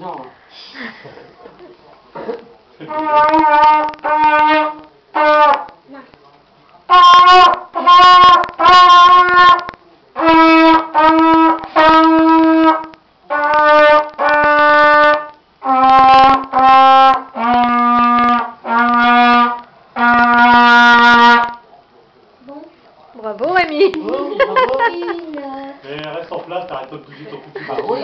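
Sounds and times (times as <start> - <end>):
trumpet playing held notes: 2.8 - 5.8, 6.9 - 21.6.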